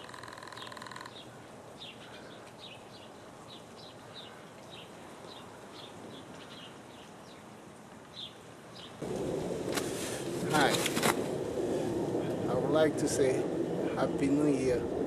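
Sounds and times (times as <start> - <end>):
small birds chirping: 0.0 - 9.0
steady background noise: 0.0 - 15.0.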